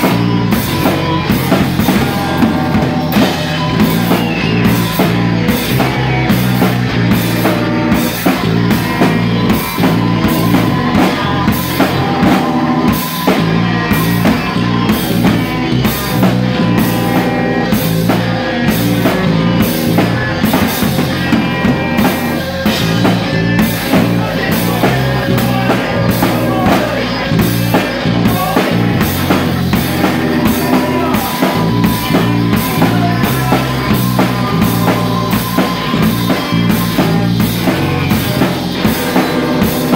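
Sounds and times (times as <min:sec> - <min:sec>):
rock band playing: 0:00.0 - 0:39.9.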